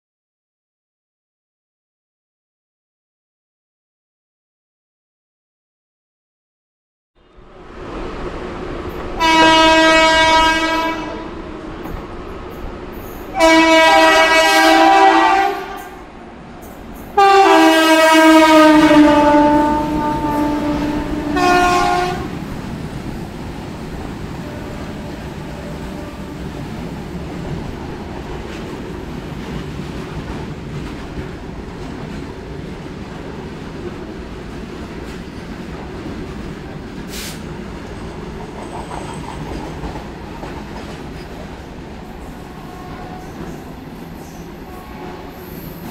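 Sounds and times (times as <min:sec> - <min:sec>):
locomotive air horn blasts: 0:09.2 - 0:11.3, 0:13.3 - 0:16.0, 0:17.2 - 0:22.4, 0:44.7 - 0:45.4.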